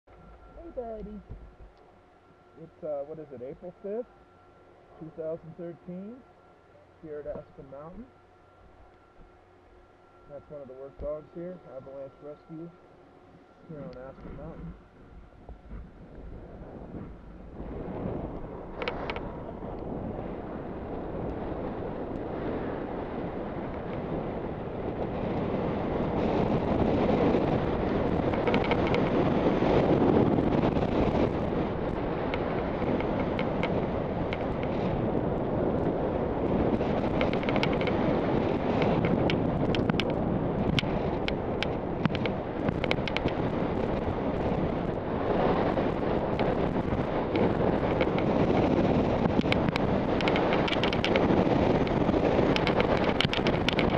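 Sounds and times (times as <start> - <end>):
wind rushing over microphone: 13.4 - 53.9.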